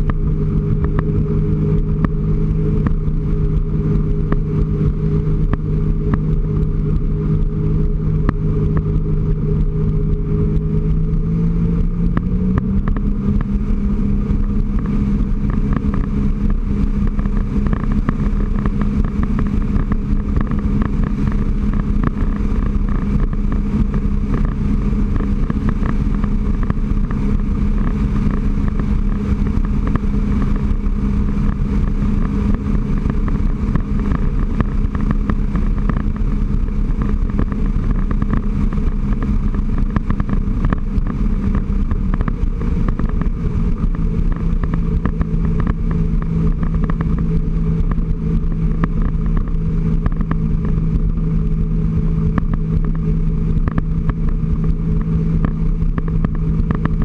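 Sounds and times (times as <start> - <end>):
watercraft engine running: 0.0 - 57.0.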